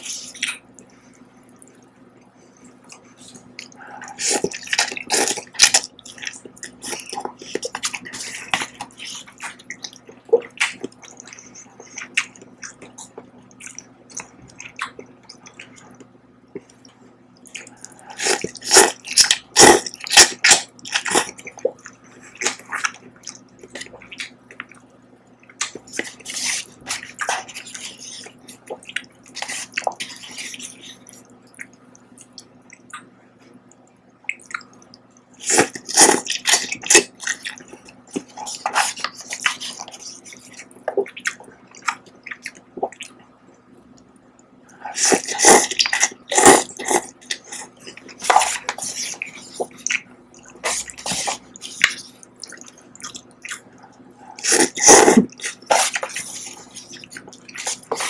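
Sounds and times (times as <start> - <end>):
wet mouth sounds: 25.5 - 58.0
slurping noodles: 35.4 - 37.1, 44.9 - 49.8, 54.3 - 58.0.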